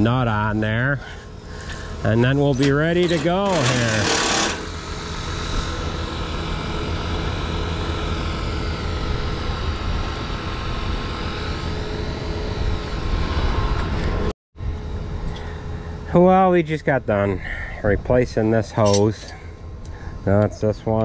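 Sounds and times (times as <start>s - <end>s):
tractor engine droning: 0.0s - 14.2s.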